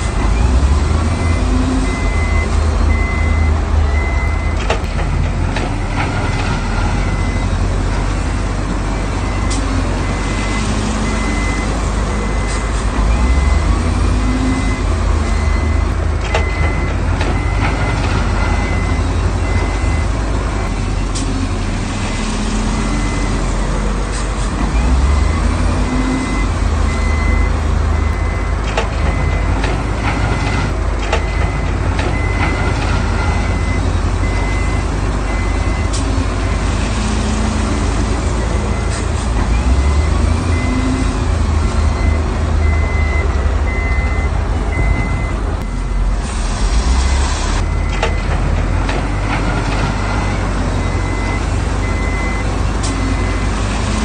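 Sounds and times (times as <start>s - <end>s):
diesel machinery rumbling: 0.0s - 54.0s
reversing alarm beeping: 0.3s - 4.6s, 6.1s - 7.6s, 8.9s - 21.2s, 24.8s - 36.1s, 38.4s - 46.2s, 47.6s - 48.4s, 49.2s - 53.5s.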